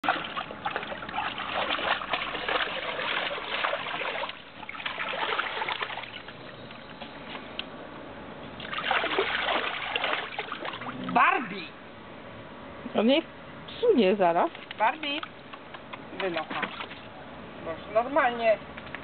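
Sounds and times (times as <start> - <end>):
water splashing in paddling pool: 0.0 - 7.1, 8.6 - 11.4, 16.2 - 17.1.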